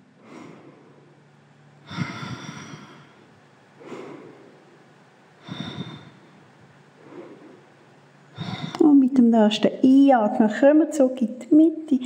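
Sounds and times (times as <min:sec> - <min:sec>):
woman breathing: 0:00.0 - 0:09.0.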